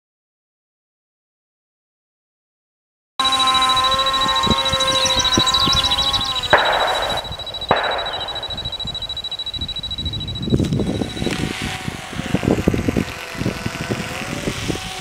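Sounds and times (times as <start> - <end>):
model plane motor whining: 3.2 - 7.6, 8.5 - 15.0
high steady whine: 3.2 - 14.7
sharp knocks: 5.9 - 8.9.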